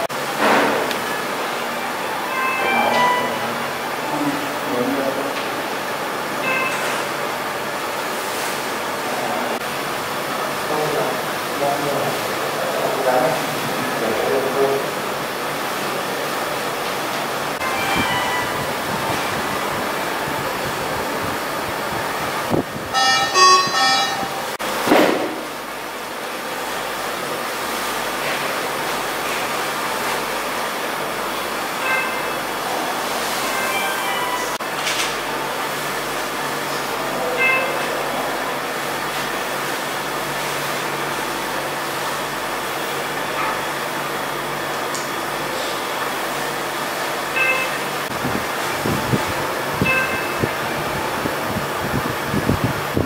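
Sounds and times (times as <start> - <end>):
equipment and ventilation hiss: 0.0 - 53.0
electronic alarm tones: 1.8 - 3.9, 6.4 - 7.2, 17.6 - 19.0, 22.9 - 24.6, 33.5 - 34.6, 37.3 - 38.0, 47.3 - 48.1, 49.8 - 50.8.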